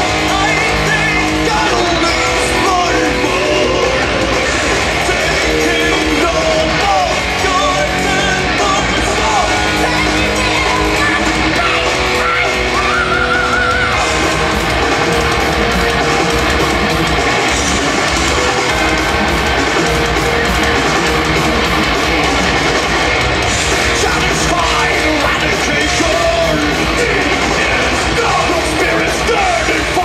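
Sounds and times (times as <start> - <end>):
man singing lead vocal: 0.0 - 13.9, 23.7 - 30.0
heavy metal band playing live: 0.0 - 30.0.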